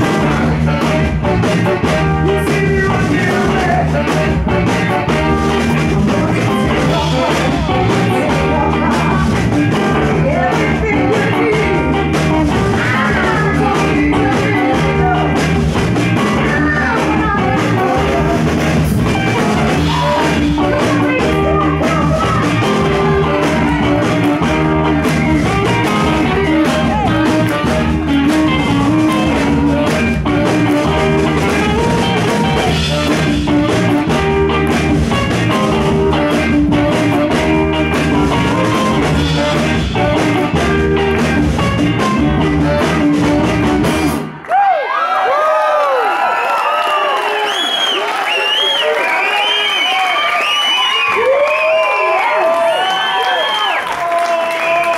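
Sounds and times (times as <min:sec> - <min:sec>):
person singing: 0:00.0 - 0:34.6
live rhythm and blues band: 0:00.0 - 0:44.4.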